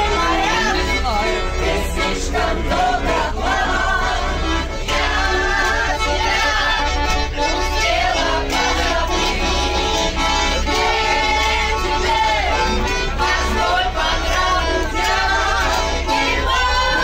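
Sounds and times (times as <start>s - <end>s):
women singing together: 0.0s - 7.0s, 10.7s - 17.0s
accordion: 0.0s - 17.0s.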